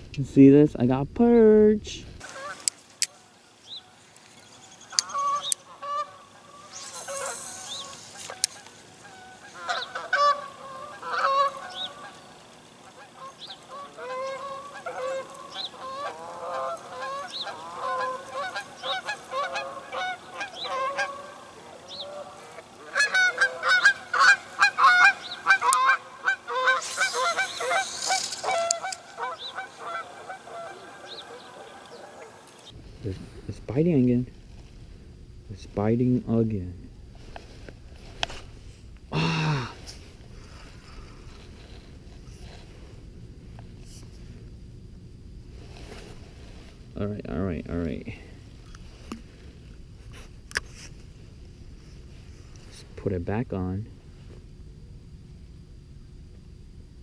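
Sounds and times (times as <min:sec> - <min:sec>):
geese honking: 0:02.2 - 0:32.8.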